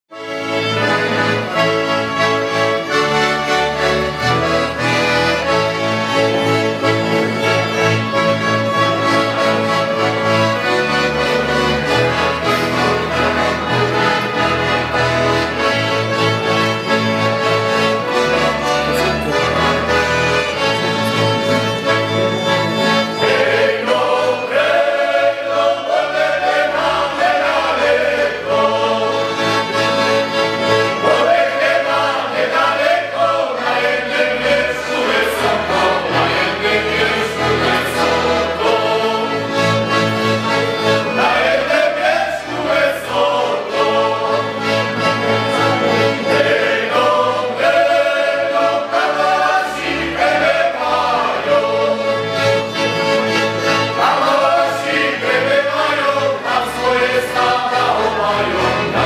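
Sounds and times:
accordion playing folk tune: 0.1s - 59.0s
group of voices singing: 17.8s - 59.0s.

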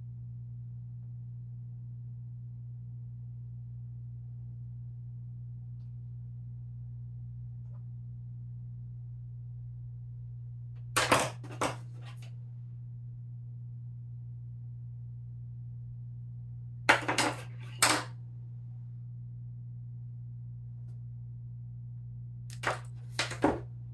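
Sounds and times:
low electrical hum: 0.0s - 23.9s
plastic frames clattering on desk: 11.0s - 12.3s, 16.9s - 18.1s, 22.5s - 23.6s.

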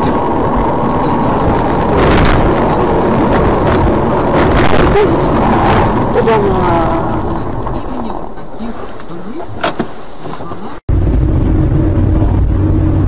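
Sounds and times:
car road and engine noise: 0.0s - 13.0s.

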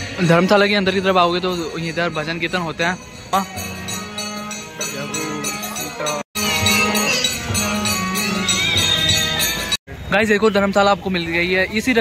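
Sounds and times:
harmonium held notes: 0.0s - 9.8s
jingling percussion: 0.0s - 9.8s
hand drum: 3.3s - 9.8s.

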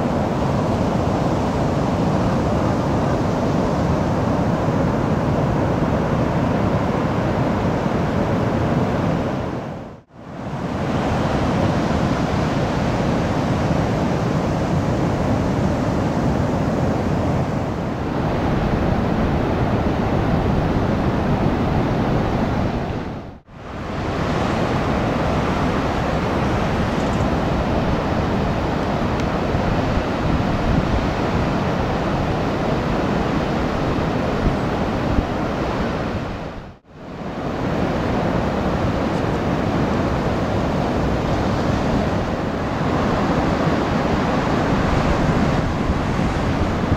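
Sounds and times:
large waves breaking on beach: 0.0s - 46.9s.

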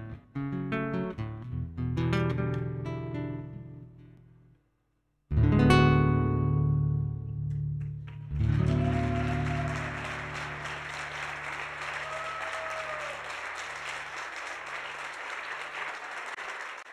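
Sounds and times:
audience applause: 8.4s - 16.9s.

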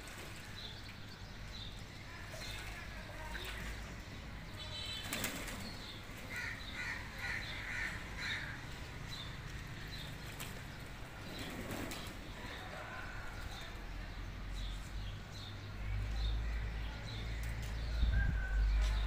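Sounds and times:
pigeons splashing in water: 0.0s - 14.2s.

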